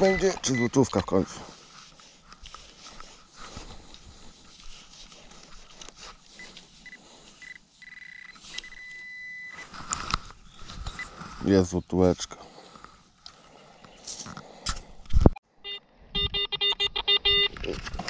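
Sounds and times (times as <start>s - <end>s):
metal detector beeping: 0.0s - 1.2s, 6.3s - 9.8s, 15.6s - 17.8s.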